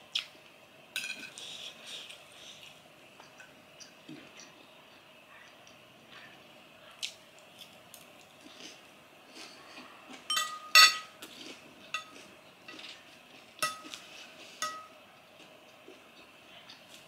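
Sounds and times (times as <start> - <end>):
cutlery clinking on a ceramic plate: 1.0 - 1.4, 10.3 - 11.2, 11.9 - 13.0, 13.6 - 14.0, 14.6 - 15.0.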